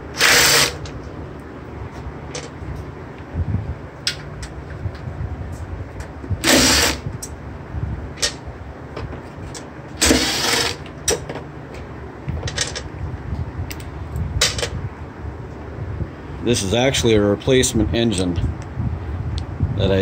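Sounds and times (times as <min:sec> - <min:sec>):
recoil starter pulls on mower engine: 0:00.1 - 0:00.9, 0:06.4 - 0:07.0, 0:10.0 - 0:10.9.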